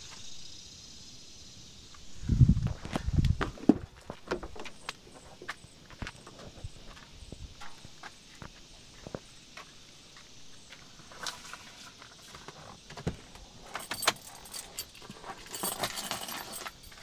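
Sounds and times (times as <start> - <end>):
keys jangling: 13.6 - 17.0.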